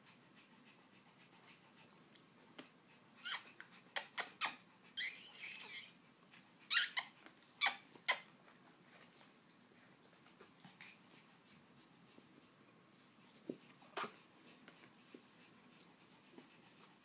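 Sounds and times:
puppy squeaking: 3.2s - 6.0s, 6.7s - 8.3s.

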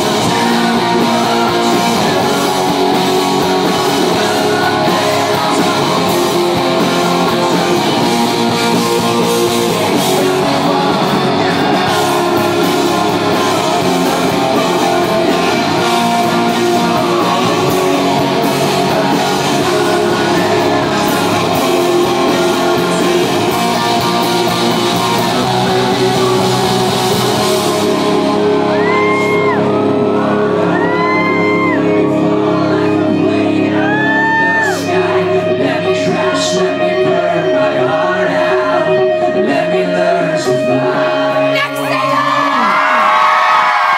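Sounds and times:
live rock band playing: 0.0s - 43.9s
male lead vocal: 0.0s - 43.9s
crowd whooping: 24.0s - 35.2s, 41.6s - 43.9s.

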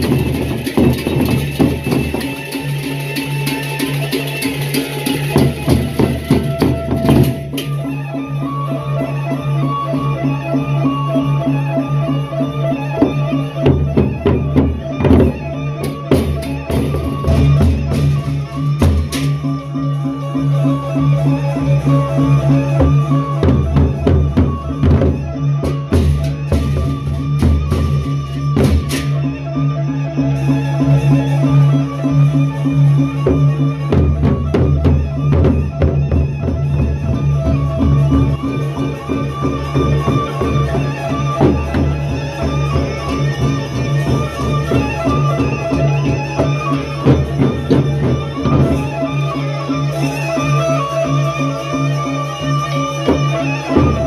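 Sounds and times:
brass cymbals clashing: 0.0s - 7.8s
large drums beating: 0.0s - 7.8s, 13.0s - 19.6s, 22.5s - 29.3s, 33.1s - 51.2s, 52.7s - 54.0s.

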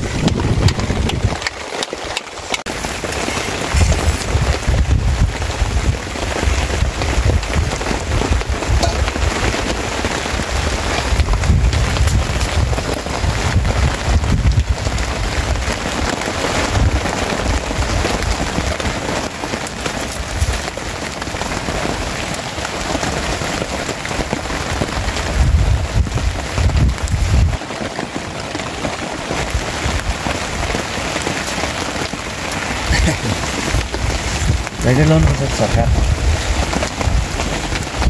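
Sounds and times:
low rumbles: 0.0s - 1.6s
rain pattering: 0.0s - 38.0s.

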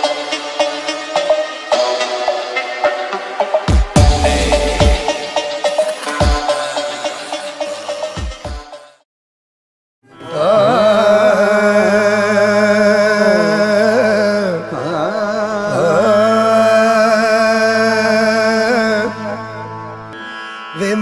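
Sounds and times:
held drone: 4.0s - 8.2s.

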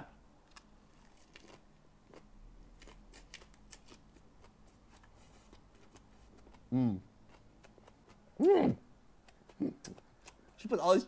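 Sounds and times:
crunchy food being bitten: 0.4s - 8.2s.

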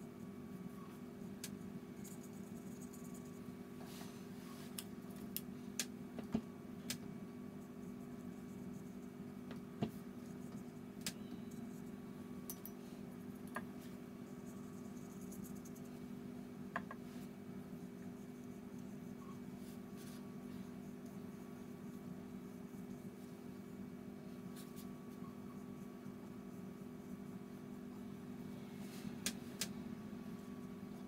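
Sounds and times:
steady low hum: 0.0s - 31.0s
brush scratching on card: 17.8s - 23.4s.

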